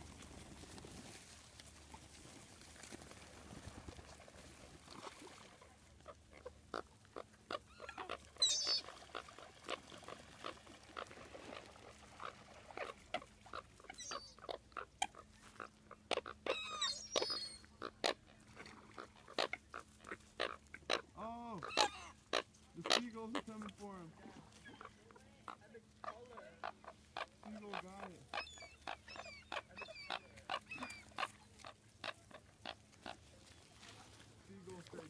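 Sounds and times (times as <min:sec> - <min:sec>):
coots calling: 0:06.1 - 0:23.9, 0:24.6 - 0:33.6
high twittering: 0:08.4 - 0:08.8.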